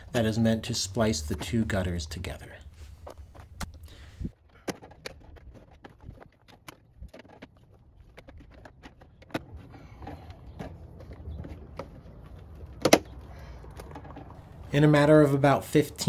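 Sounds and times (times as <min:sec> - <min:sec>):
plastic parts clicking and knocking: 0:03.0 - 0:14.7.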